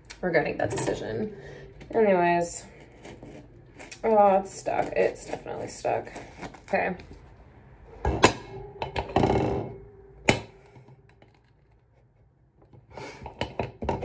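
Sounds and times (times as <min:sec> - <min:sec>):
rustling and scraping: 0:00.4 - 0:09.9.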